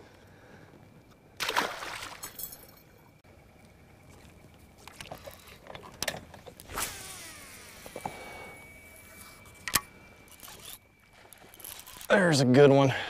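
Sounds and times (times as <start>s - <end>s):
reel clicks: 4.9s - 12.4s
reel spool whirring: 6.5s - 12.4s.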